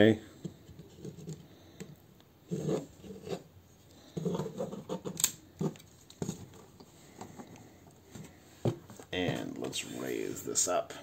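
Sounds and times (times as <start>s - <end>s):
plastic toy parts rubbing: 0.4s - 1.5s, 4.1s - 7.6s
plastic parts clicking together: 5.1s - 6.2s.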